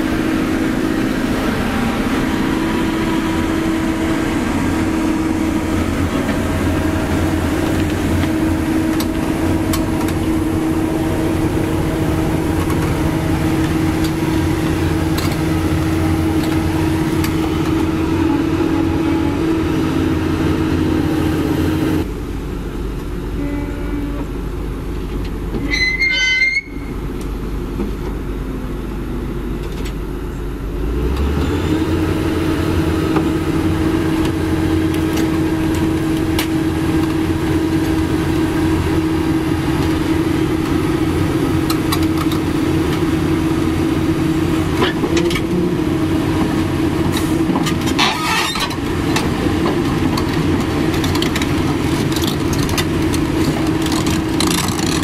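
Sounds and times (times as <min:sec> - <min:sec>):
excavator diesel engine running: 0:00.0 - 0:55.0
brief high squeal: 0:25.6 - 0:27.0.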